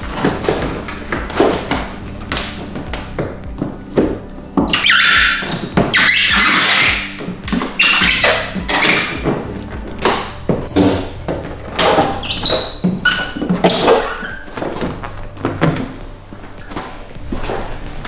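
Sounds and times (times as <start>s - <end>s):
squeegee rasping over wet film: 0.0s - 18.0s
film squeaks: 4.6s - 16.0s.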